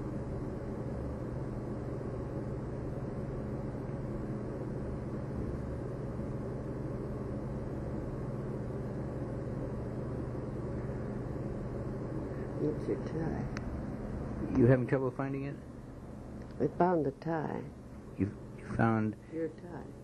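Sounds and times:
film soundtrack hum and hiss: 0.0 - 20.0.

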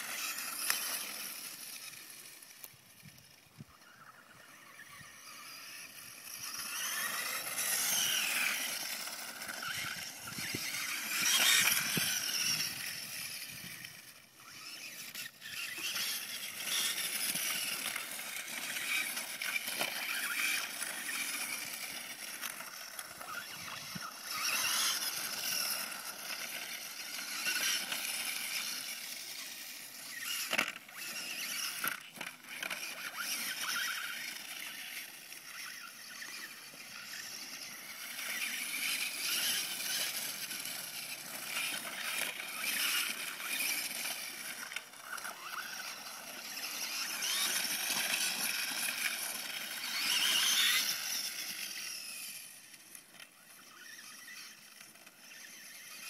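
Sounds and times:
electric motor whining: 0.0 - 56.0.

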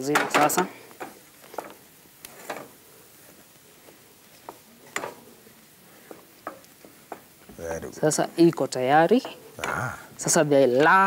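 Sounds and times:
wooden spoon stirring mash in pan: 0.4 - 7.4.

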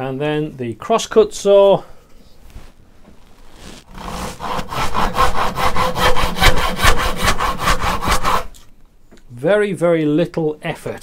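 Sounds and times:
saw cutting through wood: 3.6 - 8.6.

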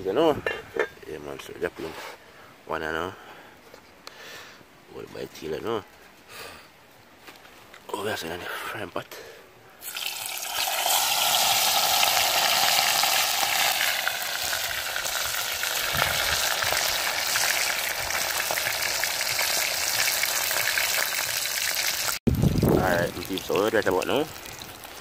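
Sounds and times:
fish sizzling in hot oil: 9.8 - 22.2.

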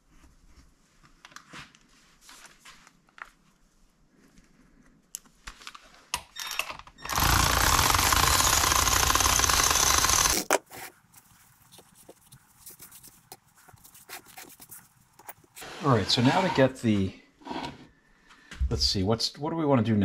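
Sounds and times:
workshop tool running: 7.0 - 10.6.

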